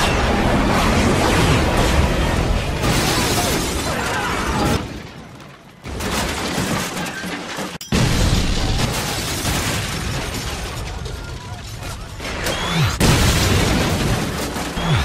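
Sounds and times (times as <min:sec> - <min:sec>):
explosion blast: 0:12.6 - 0:15.0.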